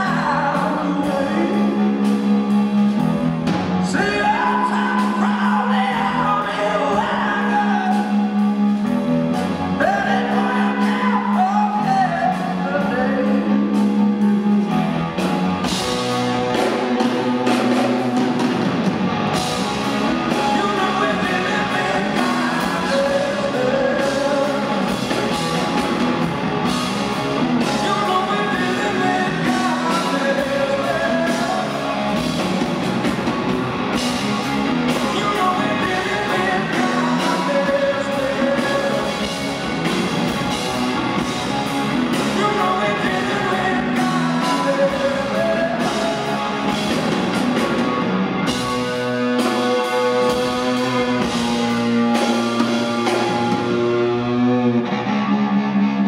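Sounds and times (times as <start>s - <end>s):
man singing: 0.0s - 2.2s, 3.8s - 8.4s, 9.8s - 14.3s, 20.2s - 25.6s, 27.6s - 32.3s, 34.9s - 39.6s, 42.1s - 46.8s
live rock band: 0.0s - 56.0s.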